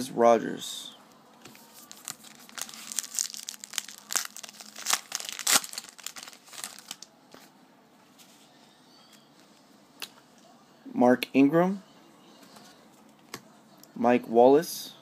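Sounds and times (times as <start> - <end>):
foil wrapper tearing and crinkling: 1.8 - 7.0.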